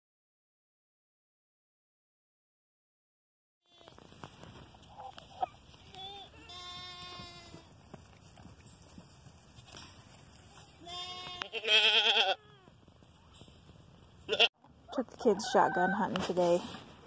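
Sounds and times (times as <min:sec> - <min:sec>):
goats bleating: 0:05.4 - 0:07.7, 0:10.8 - 0:12.7, 0:14.3 - 0:14.5.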